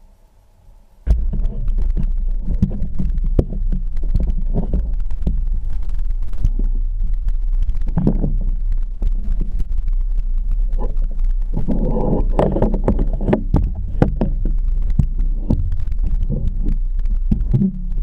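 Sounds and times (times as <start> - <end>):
handling rumble: 1.0 - 18.0
knocks and scrapes: 1.0 - 18.0.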